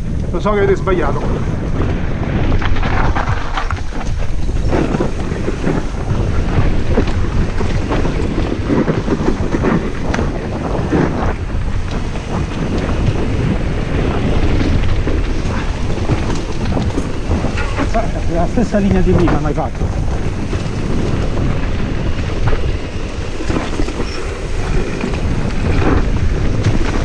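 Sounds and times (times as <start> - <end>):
tyres rumbling on dirt and stones: 0.0 - 27.0
wind buffeting microphone: 0.0 - 27.0
bike knocks and rattles: 1.0 - 27.0.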